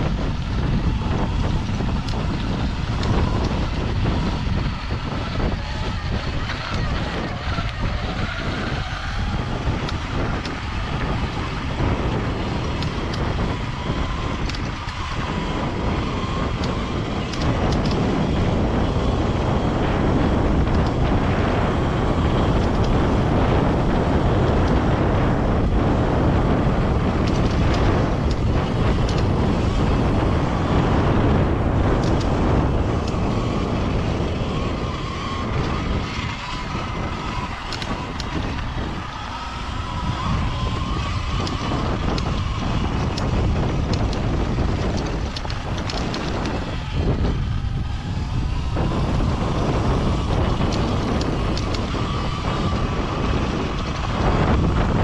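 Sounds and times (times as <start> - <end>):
wind buffeting microphone: 0.0 - 55.0
tyres rolling over gravel: 26.8 - 55.0.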